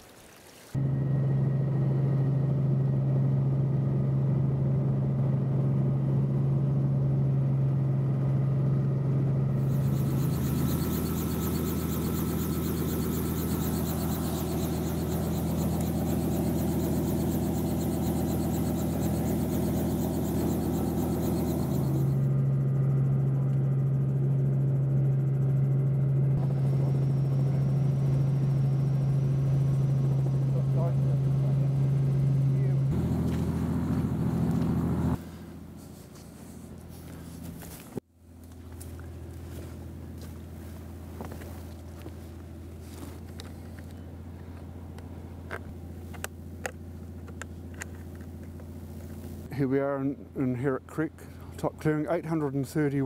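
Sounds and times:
helicopter engine and rotor drone: 0.8s - 53.0s
steady low hum: 0.8s - 53.0s.

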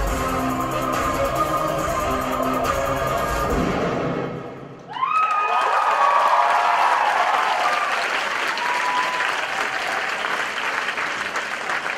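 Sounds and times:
audience applauding: 4.8s - 11.9s
whoops and shouts: 4.9s - 10.0s.

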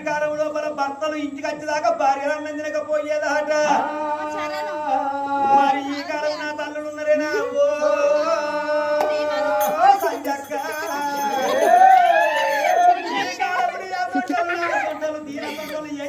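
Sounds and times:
man singing long notes: 3.2s - 6.1s, 6.9s - 9.9s.

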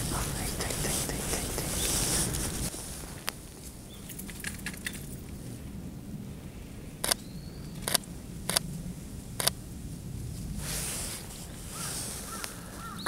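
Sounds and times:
soft rustle: 0.0s - 5.8s, 9.4s - 13.0s.

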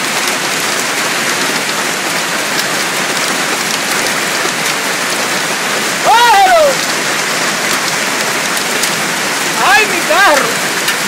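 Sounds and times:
hail and rain pelting: 0.0s - 11.0s.

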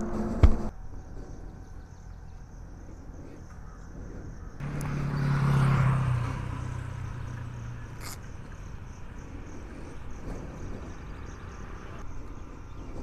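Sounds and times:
low traffic rumble: 0.0s - 13.0s
vehicle engine passing: 4.5s - 12.7s.

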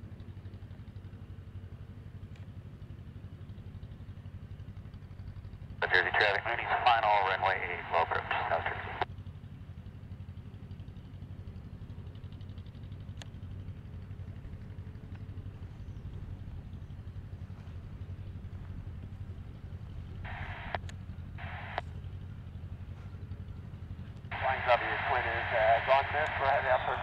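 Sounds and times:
propeller plane engine drone: 0.0s - 27.0s
radio noise bursts: 5.8s - 9.0s, 20.2s - 20.8s, 21.4s - 21.8s, 24.3s - 27.0s.

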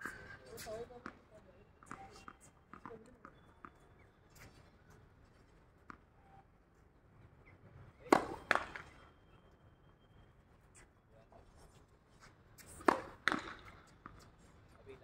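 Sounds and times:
tennis ball bouncing on hard court: 1.8s - 3.8s, 8.1s - 9.0s, 12.6s - 14.2s
racket striking tennis ball: 8.1s - 8.9s, 12.6s - 13.7s.

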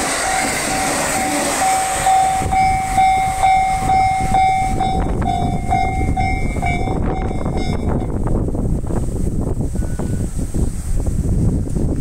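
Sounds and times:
level crossing warning bell clanging: 0.0s - 8.2s
electric train passing: 0.0s - 11.1s.

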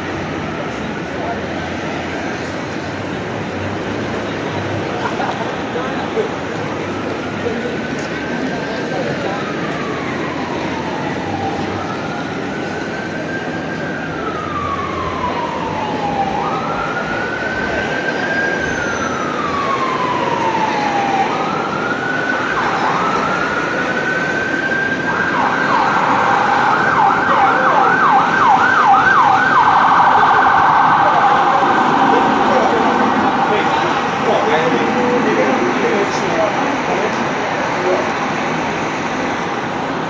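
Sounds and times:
city traffic noise: 0.0s - 40.0s
emergency vehicle siren: 0.0s - 40.0s.

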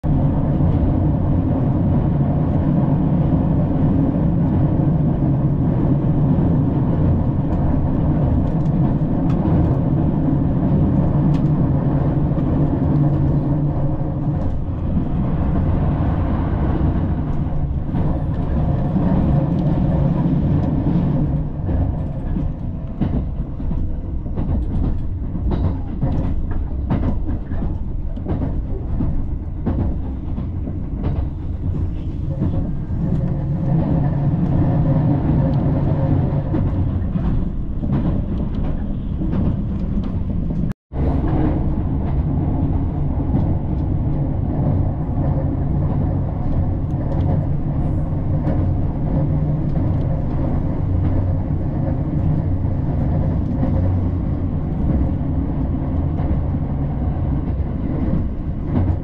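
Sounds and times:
train wheels rumbling on track: 0.0s - 59.0s.

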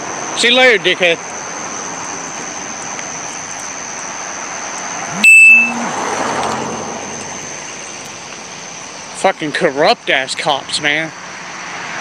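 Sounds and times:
road traffic hiss: 0.0s - 12.0s
loud electronic beep: 5.1s - 5.9s
faint high whine: 5.1s - 6.0s.

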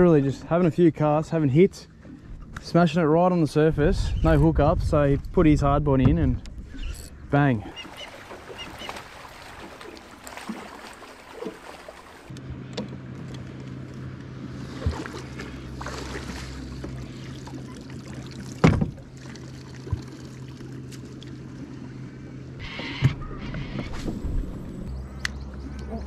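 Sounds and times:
knock on boat: 18.6s - 19.0s.

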